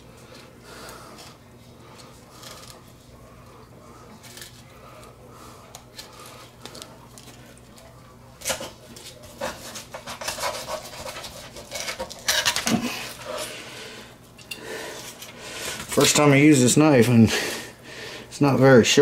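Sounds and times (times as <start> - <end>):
knife scraping through bone and scales: 9.4 - 13.5.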